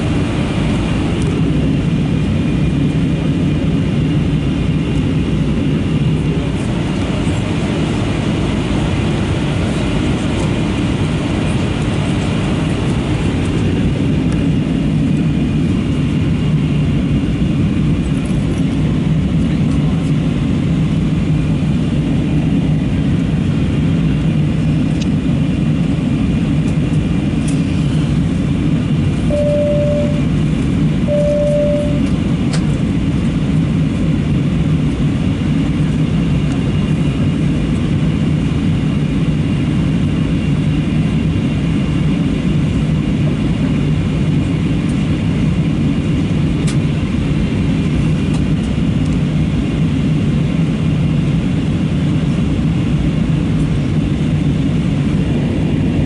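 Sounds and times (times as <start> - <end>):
jet engines and airflow rushing: 0.0 - 56.0
short electronic tones: 29.3 - 30.3, 31.1 - 32.1.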